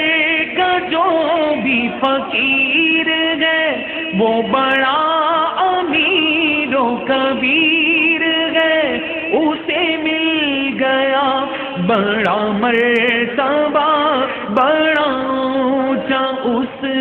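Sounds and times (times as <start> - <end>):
man singing devotional song: 0.0 - 17.0
short breaths: 11.5 - 11.8.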